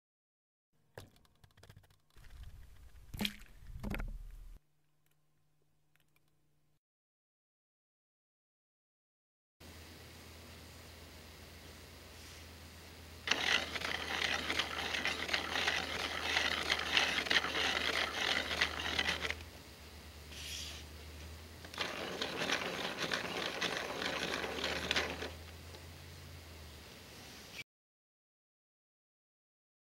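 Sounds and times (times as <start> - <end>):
plastic gears clicking rattle: 13.3 - 19.4, 21.7 - 25.4.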